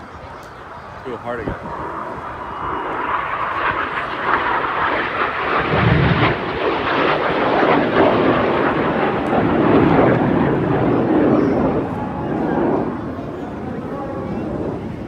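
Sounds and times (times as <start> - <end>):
jets flying past: 1.0 - 15.0.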